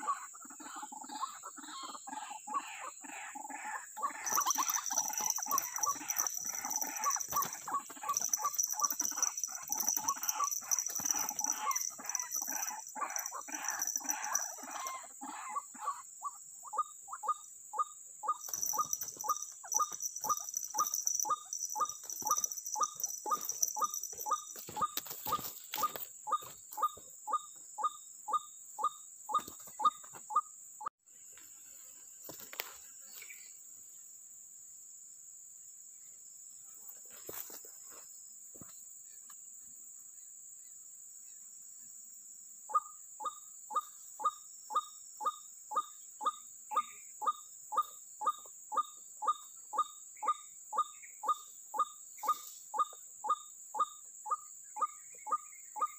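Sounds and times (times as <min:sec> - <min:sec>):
waterhens calling: 0:03.0 - 0:16.0, 0:18.3 - 0:26.9
high insect buzz: 0:04.2 - 0:15.0, 0:18.3 - 0:27.1.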